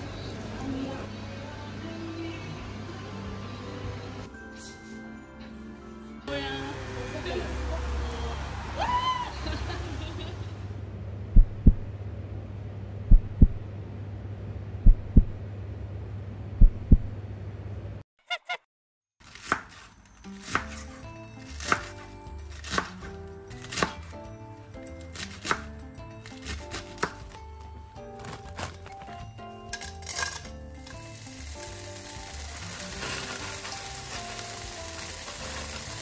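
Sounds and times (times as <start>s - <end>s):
background music: 0.0s - 7.7s, 20.0s - 36.0s
steady low hum: 10.8s - 18.0s
paired low thumps: 11.3s - 12.0s, 13.0s - 13.8s, 14.8s - 15.5s, 16.6s - 17.2s
knife chopping on wooden board: 21.6s - 22.0s, 22.6s - 24.2s, 25.2s - 25.7s, 26.4s - 27.4s.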